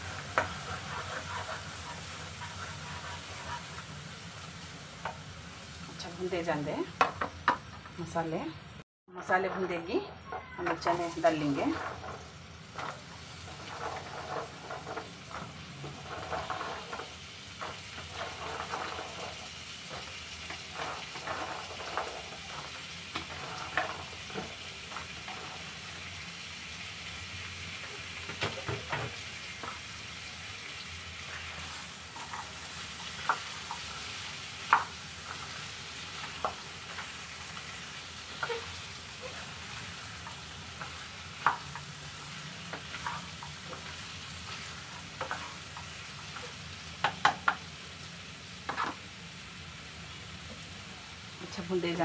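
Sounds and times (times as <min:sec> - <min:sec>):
spatula scraping and knocking pan: 0:00.0 - 0:04.0, 0:09.2 - 0:26.1, 0:27.8 - 0:29.9, 0:31.2 - 0:47.7, 0:48.6 - 0:49.0
spices sizzling in oil: 0:00.0 - 0:52.0.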